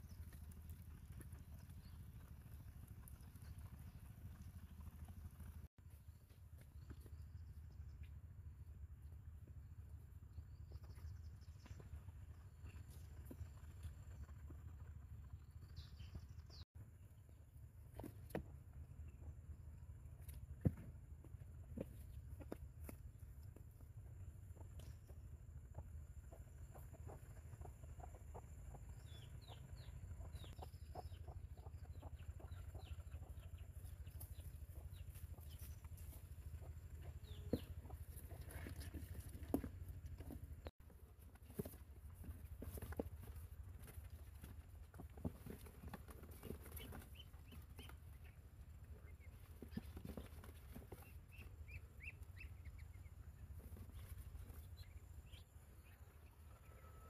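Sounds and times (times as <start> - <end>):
chicks cheeping: 24.6 - 40.7, 41.4 - 57.0.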